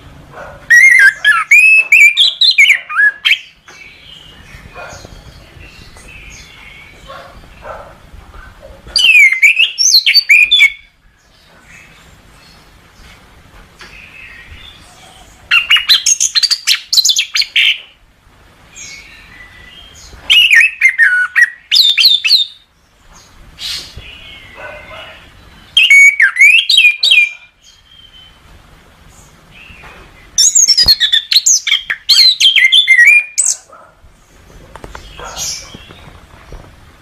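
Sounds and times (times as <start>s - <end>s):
thrush singing whistled phrases: 0.7s - 3.4s, 9.0s - 10.9s, 20.3s - 22.6s, 25.8s - 27.4s, 30.4s - 33.6s.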